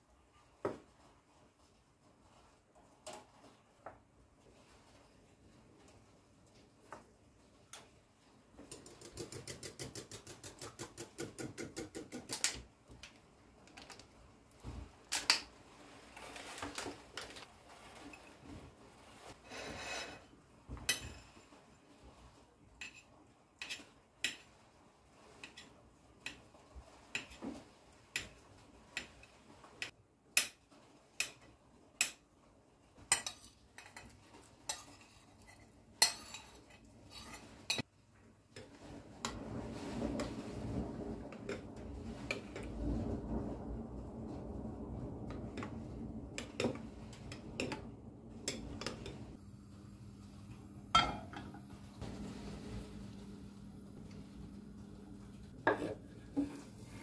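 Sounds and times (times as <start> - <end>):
knife tapping and scraping plate: 8.7 - 12.6, 55.6 - 56.7
cutlery clinking on ceramic: 51.0 - 51.6.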